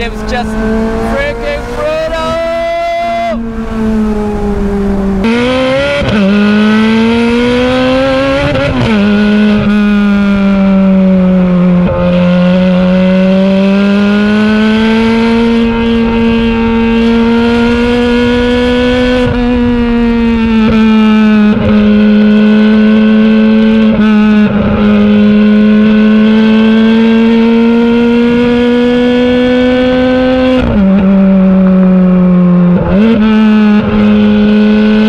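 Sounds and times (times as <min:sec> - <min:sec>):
sports car engine revving: 0:00.0 - 0:35.0.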